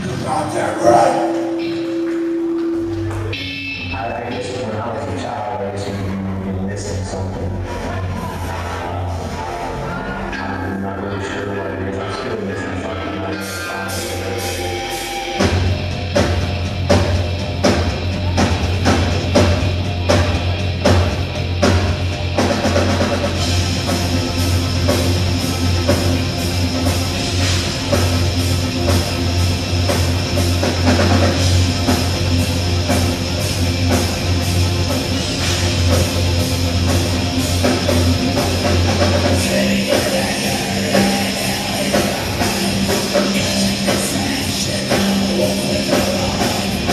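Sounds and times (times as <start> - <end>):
drum kit beat: 0.0 - 4.6, 14.0 - 46.9
bass guitar: 0.0 - 46.9
distorted electric guitars: 0.0 - 46.9.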